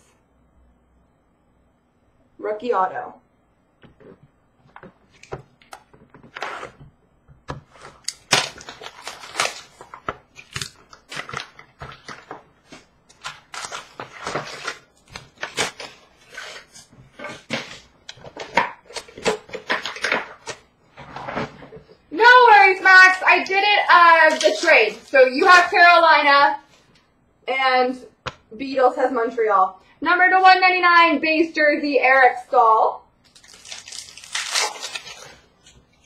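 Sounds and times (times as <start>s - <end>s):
wrappers tearing and crinkling: 8.0s - 20.6s, 23.9s - 25.7s, 33.2s - 36.0s.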